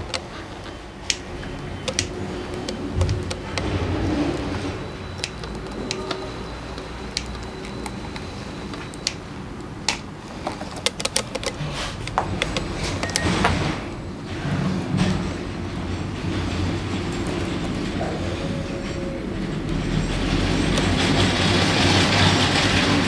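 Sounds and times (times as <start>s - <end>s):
hand tools clicking and clinking: 0.0s - 13.7s, 16.3s - 22.9s
rushing noise: 1.2s - 9.5s.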